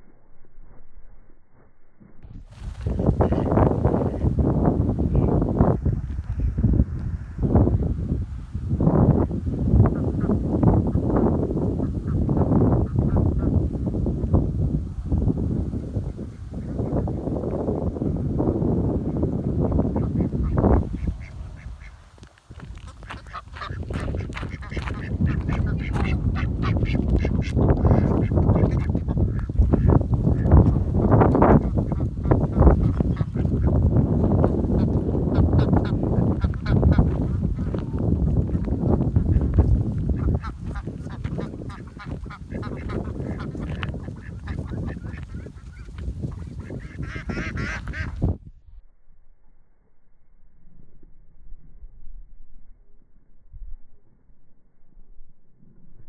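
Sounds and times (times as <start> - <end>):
wind rumbling on microphone: 0.0 - 56.0
ducks quacking: 2.8 - 4.4, 19.9 - 22.0, 22.7 - 48.3
heavy low rumble: 22.6 - 46.4.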